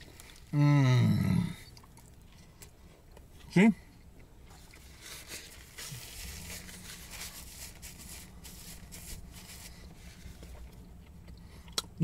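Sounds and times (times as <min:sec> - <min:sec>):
low steady hum: 0:00.0 - 0:12.0
paper wrapper crackling: 0:05.0 - 0:10.4.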